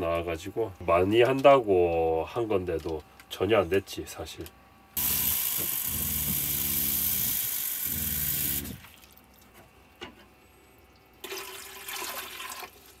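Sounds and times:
water poured into tank: 0:08.7 - 0:09.4, 0:11.2 - 0:13.0
water running into plastic cup: 0:11.2 - 0:13.0.

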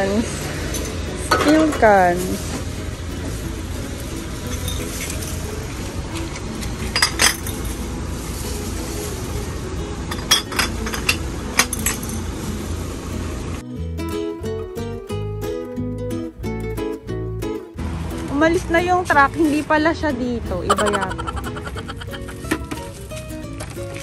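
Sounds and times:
glass bottles clinking: 0:04.4 - 0:05.5, 0:06.8 - 0:07.8, 0:10.1 - 0:12.2.

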